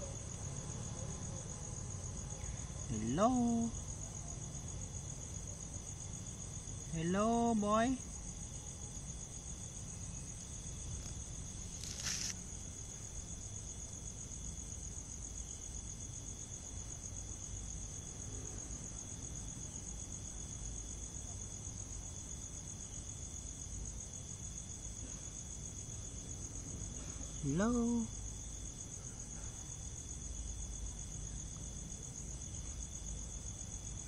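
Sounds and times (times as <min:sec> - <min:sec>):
insects trilling: 0:00.0 - 0:34.0
short burst of noise: 0:11.8 - 0:12.4.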